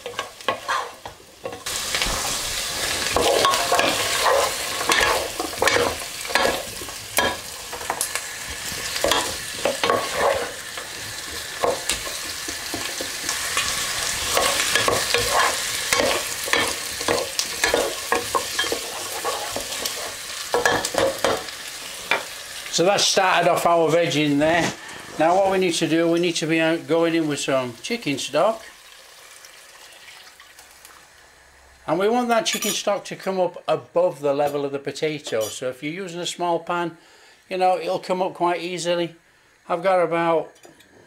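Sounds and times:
wooden spatula scraping a pan: 0.0 - 8.0, 8.8 - 10.6, 11.2 - 21.4
vegetables sizzling in a pot: 0.0 - 41.0.

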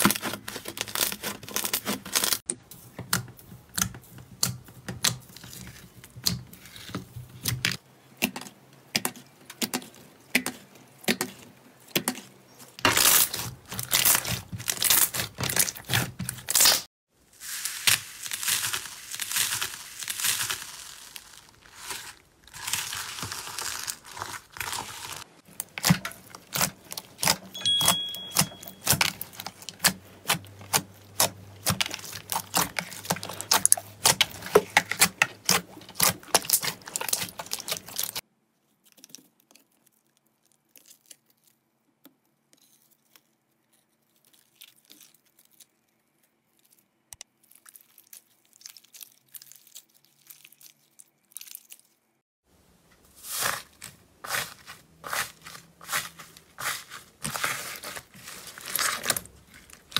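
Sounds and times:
slime crackling and popping: 0.0 - 2.5, 12.8 - 27.6, 28.4 - 38.2, 44.0 - 52.0
slime squishing: 0.0 - 27.6, 28.3 - 52.1, 53.1 - 59.9.

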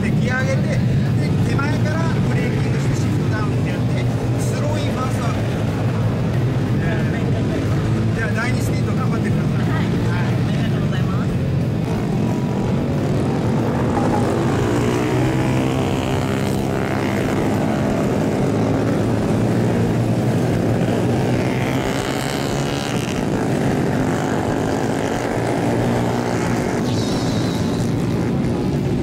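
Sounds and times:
mini bike engines racing past: 12.3 - 29.0.

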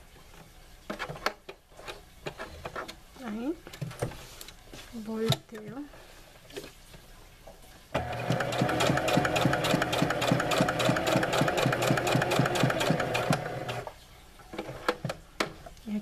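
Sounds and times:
sewing machine motor running: 8.0 - 13.9.

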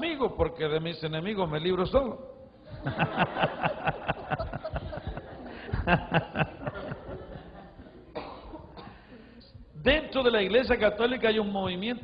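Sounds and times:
man laughing into microphone: 2.7 - 8.8.

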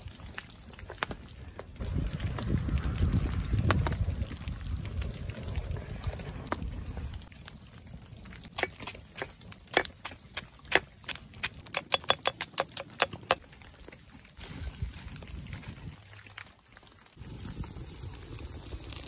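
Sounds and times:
knife chopping on stone: 9.7 - 13.4.

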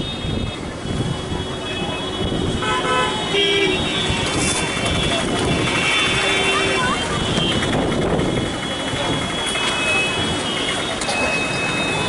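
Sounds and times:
street traffic noise: 0.0 - 12.0
vehicle horn tooting: 1.2 - 7.8, 9.4 - 12.0.

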